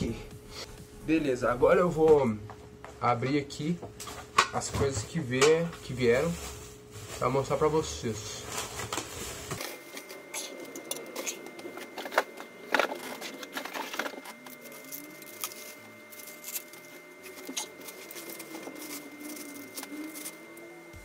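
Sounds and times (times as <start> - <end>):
plastic wrapping rustling: 5.1 - 20.6.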